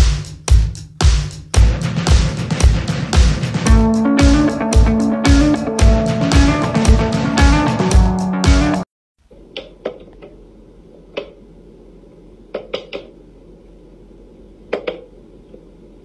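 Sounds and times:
guitar music: 0:03.6 - 0:08.9.

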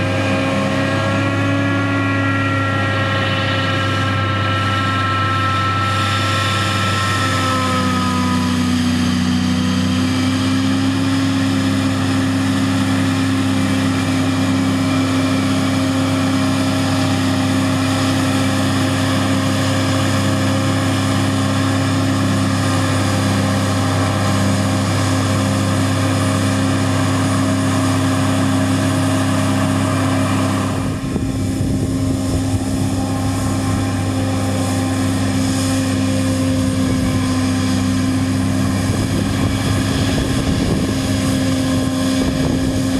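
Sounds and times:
forage harvester drone: 0:00.0 - 0:42.9
pulsing hum: 0:00.0 - 0:42.9.

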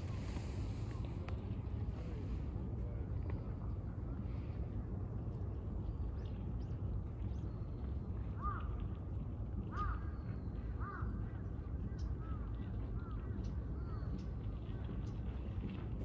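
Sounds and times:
crow cawing: 0:09.7 - 0:10.0.

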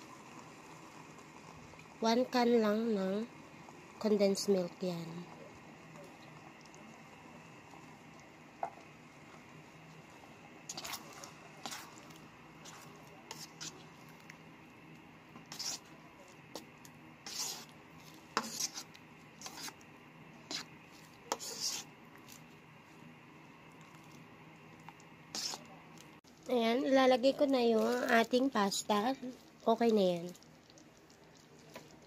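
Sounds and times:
faint steady hum: 0:00.0 - 0:32.0
spatula scraping a frying pan: 0:10.7 - 0:13.9, 0:15.4 - 0:15.9, 0:16.5 - 0:19.8, 0:20.4 - 0:22.0, 0:25.3 - 0:25.7.

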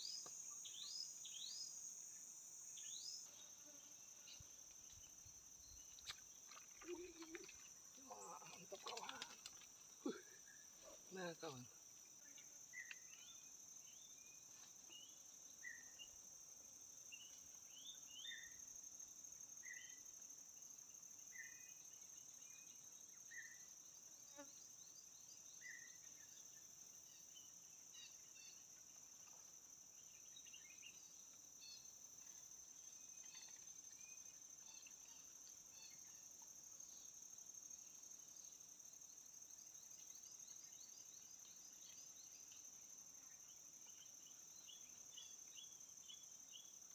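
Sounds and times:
insect drone: 0:00.0 - 0:46.9.

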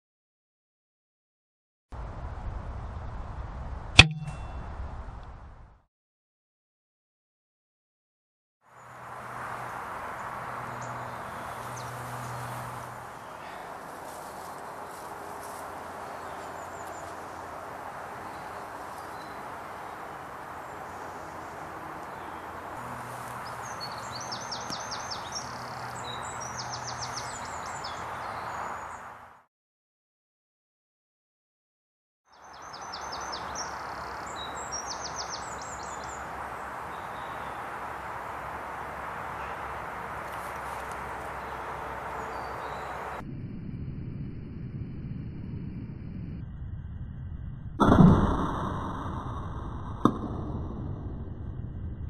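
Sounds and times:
outdoor background rush: 0:08.7 - 0:29.4, 0:32.4 - 0:43.2
small songbird singing: 0:23.4 - 0:29.0, 0:32.3 - 0:36.3, 0:41.3 - 0:43.2.

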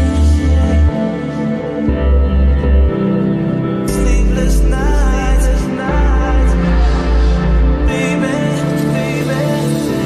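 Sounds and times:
background music with sustained tones: 0:00.0 - 0:10.0
deep bass note: 0:01.9 - 0:08.4.

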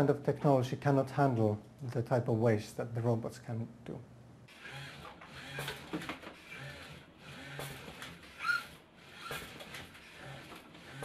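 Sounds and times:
robot arm motors whirring: 0:04.5 - 0:11.0.

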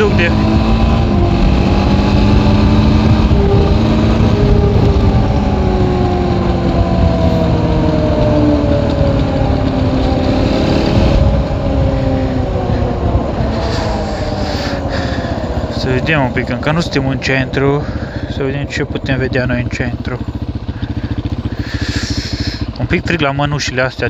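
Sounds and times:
wind noise: 0:00.0 - 0:16.8
atv engine running: 0:00.0 - 0:24.0.

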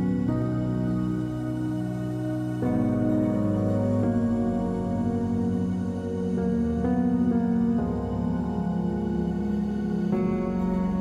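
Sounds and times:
soft ambient music: 0:00.0 - 0:11.0.

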